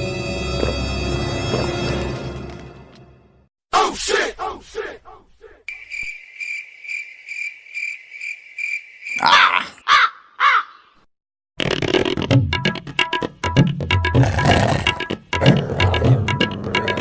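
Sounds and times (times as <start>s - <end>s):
cricket chirping: 5.7s - 9.7s
loud harsh calls: 9.1s - 10.8s.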